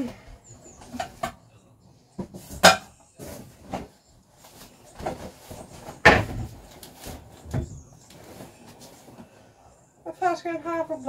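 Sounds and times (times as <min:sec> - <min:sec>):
knocks and bumps of household items: 0:02.1 - 0:08.8.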